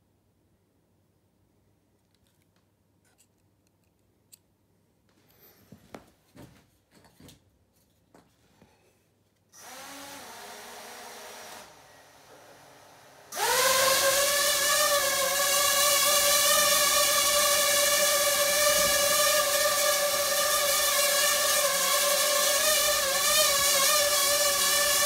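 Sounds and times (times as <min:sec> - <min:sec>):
drone propellers whirring: 0:13.4 - 0:25.0.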